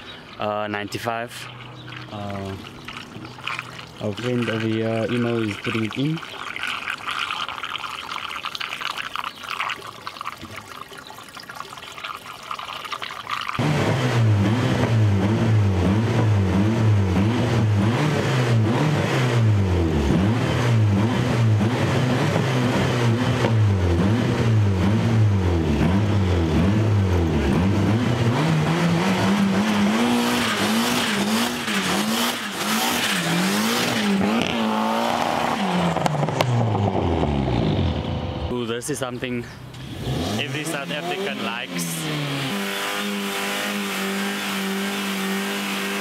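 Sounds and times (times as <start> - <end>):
car engine revving: 13.6 - 38.6, 39.8 - 46.0.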